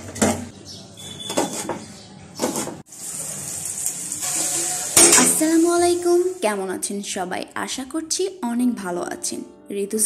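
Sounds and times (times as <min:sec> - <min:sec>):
onions sizzling in a wok: 0:02.9 - 0:06.8.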